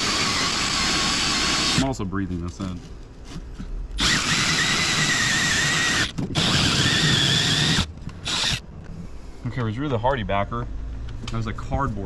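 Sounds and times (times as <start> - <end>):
power drill hole saw whining: 0.0 - 1.9, 4.0 - 8.6.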